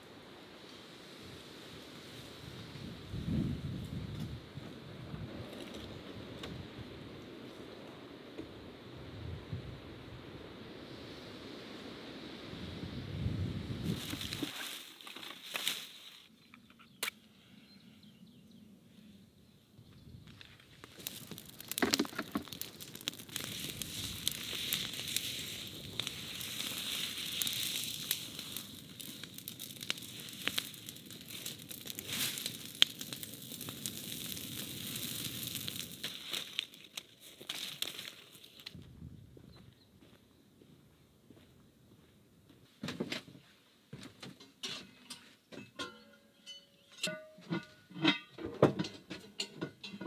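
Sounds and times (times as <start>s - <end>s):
brush fire crackling and popping: 0.0s - 7.8s, 13.7s - 16.0s, 20.2s - 38.8s.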